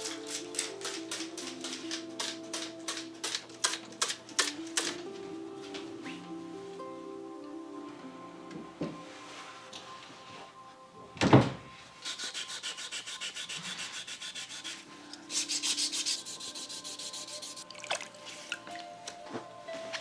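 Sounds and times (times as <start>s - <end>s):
sandpaper rubbing on bamboo: 12.0s - 17.6s.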